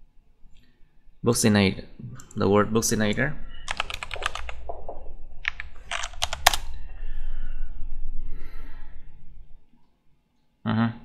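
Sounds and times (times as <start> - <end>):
faint low hum: 0.0 - 11.0
typing on a keyboard: 3.7 - 6.6.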